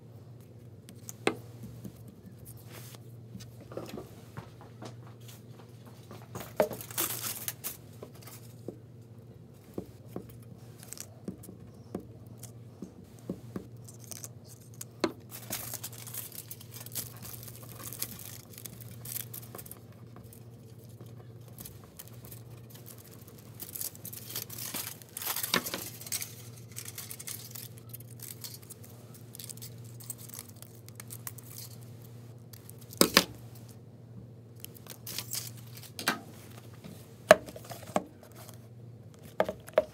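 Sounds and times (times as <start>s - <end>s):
aluminium foil crinkling: 6.1s - 8.6s, 10.0s - 33.8s, 34.6s - 36.8s.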